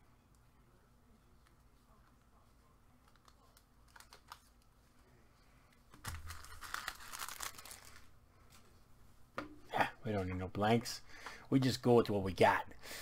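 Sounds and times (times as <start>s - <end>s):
foil pack tearing and crinkling: 6.0s - 8.0s.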